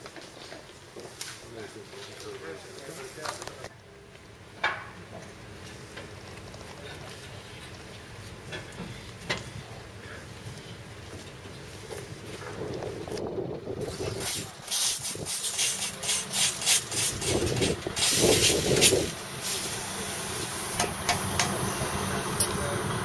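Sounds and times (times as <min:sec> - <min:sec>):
compressed air hissing bursts: 0:14.2 - 0:22.7.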